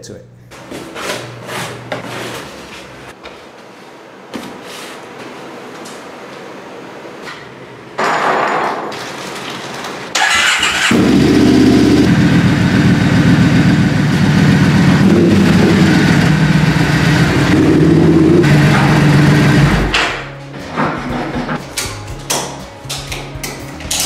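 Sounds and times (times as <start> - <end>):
motorcycle engine starting and running: 10.1 - 20.0.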